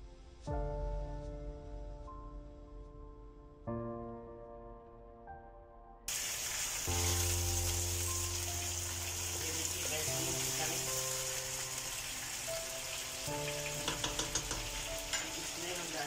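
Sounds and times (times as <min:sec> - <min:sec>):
soft background music: 0:00.0 - 0:16.0
chicken sizzling in hot oil: 0:06.1 - 0:16.0
spatula clicking against pan: 0:13.8 - 0:15.3.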